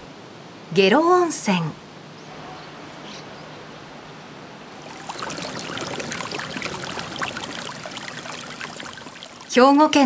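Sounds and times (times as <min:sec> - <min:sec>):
faint steady hiss: 0:00.0 - 0:10.0
water splashing over stones: 0:04.7 - 0:09.8.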